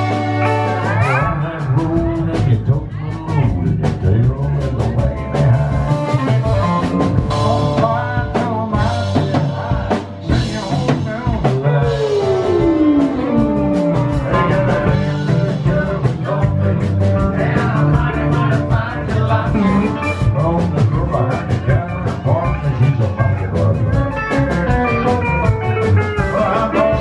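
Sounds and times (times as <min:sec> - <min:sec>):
country band playing live: 0:00.0 - 0:27.0
pedal steel guitar slide: 0:12.0 - 0:15.0.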